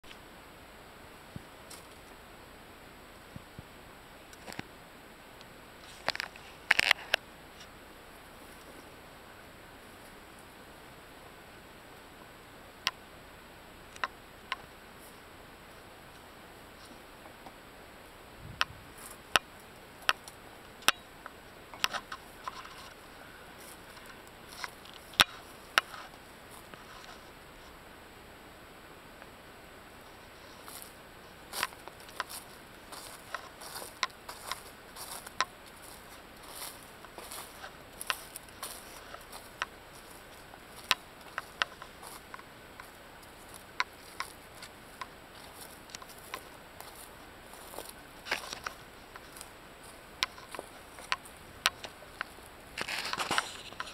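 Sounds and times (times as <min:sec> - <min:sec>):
faint steady hiss: 0:00.0 - 0:53.9
sharp clicks and ticks: 0:50.2 - 0:53.9.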